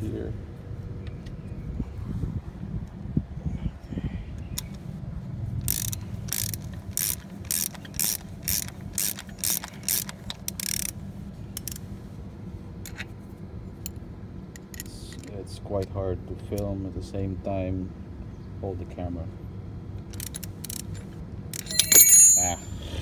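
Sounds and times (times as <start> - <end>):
ratchet wrench clicking: 5.6 - 11.0, 11.6 - 11.8, 20.1 - 22.7.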